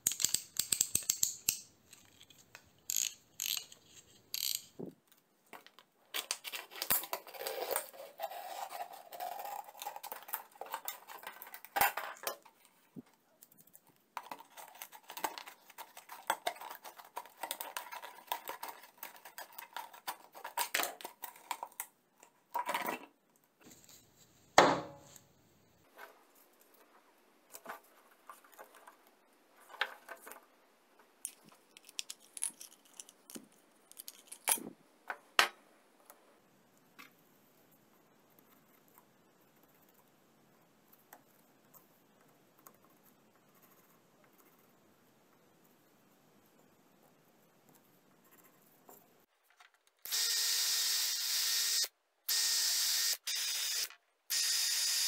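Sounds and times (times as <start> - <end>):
clicks of tools and plastic: 0.0 - 7.9.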